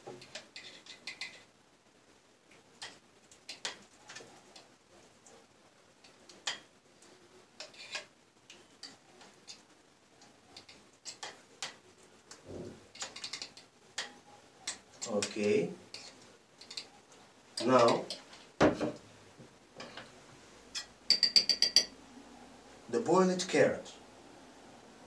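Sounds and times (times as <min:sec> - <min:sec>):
metal utensil tapping glass jar: 0:20.8 - 0:21.9.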